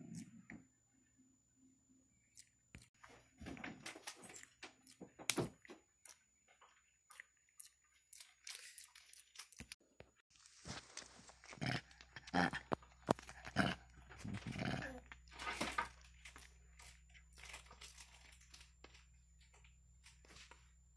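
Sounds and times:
small clicks and mouth sounds: 2.3s - 3.0s, 4.3s - 9.8s, 10.9s - 15.4s.

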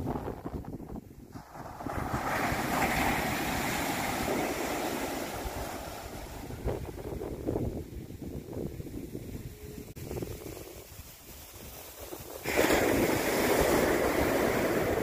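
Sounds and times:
wind buffeting microphone: 0.0s - 15.0s
ocean surf breaking: 1.3s - 7.1s, 12.0s - 15.0s.

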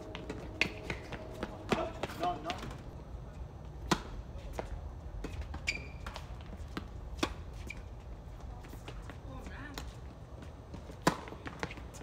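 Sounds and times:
tennis ball struck by racket: 3.8s - 4.2s, 11.0s - 11.7s
tennis ball bouncing: 10.7s - 12.0s.

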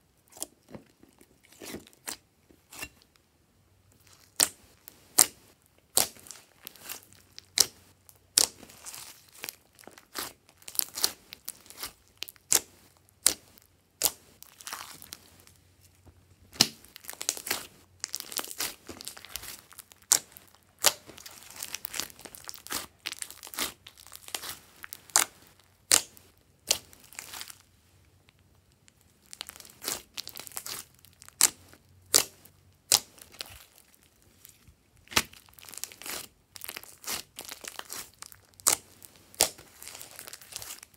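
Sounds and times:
slime squishing: 0.2s - 3.0s, 4.0s - 15.6s, 16.4s - 27.6s, 28.9s - 40.9s.

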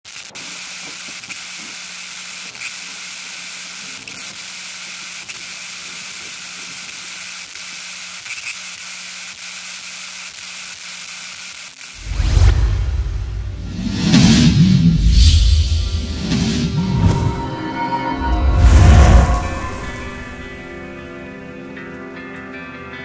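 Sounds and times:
steady hiss: 0.1s - 12.2s.

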